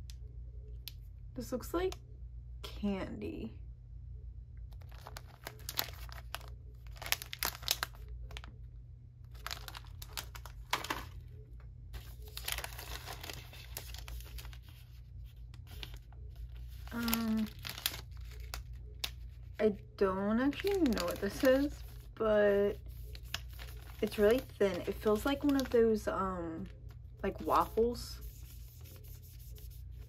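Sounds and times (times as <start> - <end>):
plastic wrappers crinkling: 4.7 - 11.3, 12.0 - 19.6, 20.4 - 30.0.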